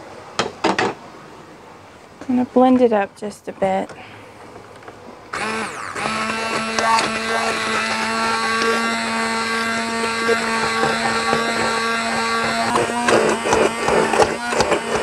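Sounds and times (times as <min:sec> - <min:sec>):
immersion blender whining: 0:05.3 - 0:15.0.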